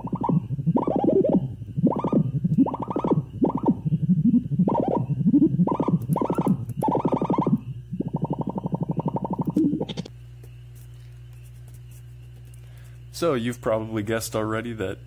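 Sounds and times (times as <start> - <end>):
pulsing synthesizer tone: 0.0 - 10.1.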